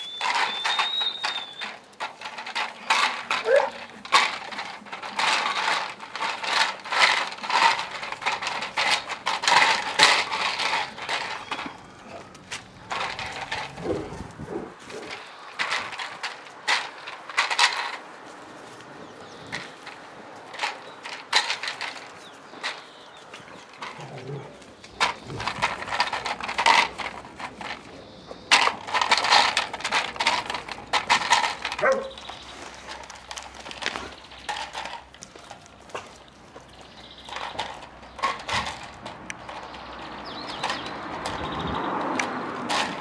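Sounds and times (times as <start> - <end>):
plastic bottles clattering: 0.0 - 14.2, 14.8 - 18.0, 19.5 - 22.8, 24.9 - 43.0
puppy yapping: 3.4 - 3.8, 31.8 - 32.2.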